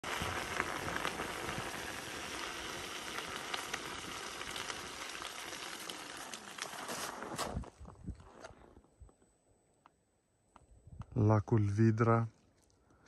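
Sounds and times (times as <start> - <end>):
tyre rolling over gritted snow: 0.0 - 8.9.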